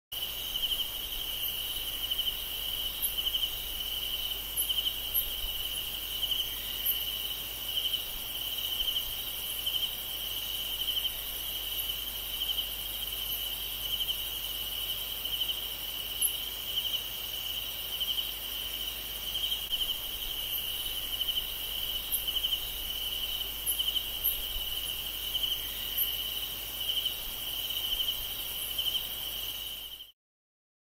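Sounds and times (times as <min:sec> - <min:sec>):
insects trilling: 0:00.2 - 0:30.1.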